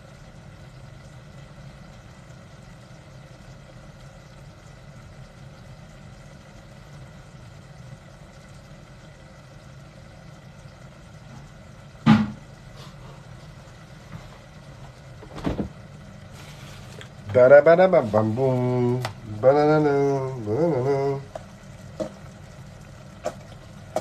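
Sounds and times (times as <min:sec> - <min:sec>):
steady low hum: 0:00.0 - 0:24.0
kitchen clatter knocks: 0:12.1 - 0:12.4.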